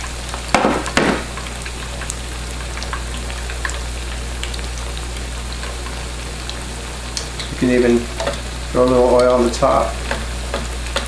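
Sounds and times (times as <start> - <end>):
chicken frying in hot oil: 0.0 - 11.0
oil crackles and pops: 0.0 - 11.0.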